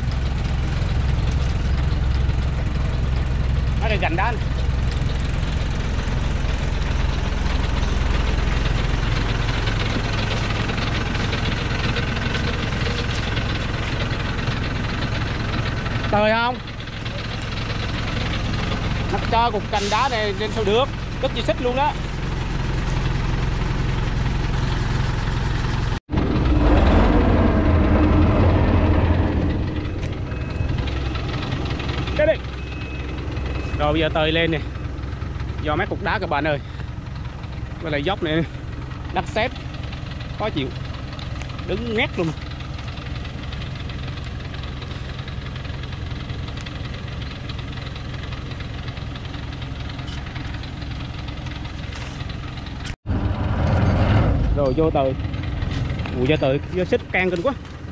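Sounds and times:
truck diesel engine running: 0.0 - 57.9
winch whine: 0.0 - 57.9.

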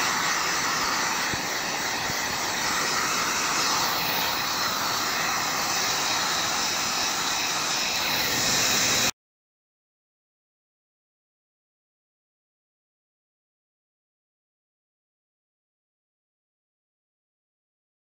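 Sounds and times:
heat gun blowing: 0.0 - 9.1.

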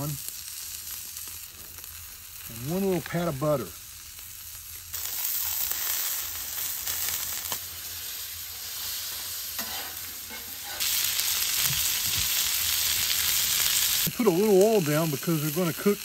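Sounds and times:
steaks sizzling on a griddle: 0.0 - 16.0.

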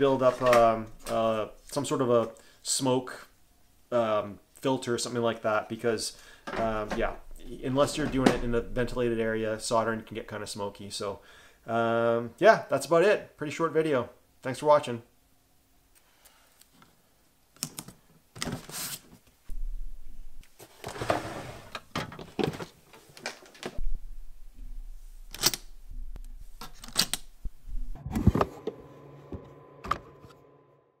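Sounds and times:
steady tone: 23.8 - 26.6, 27.3 - 31.0.

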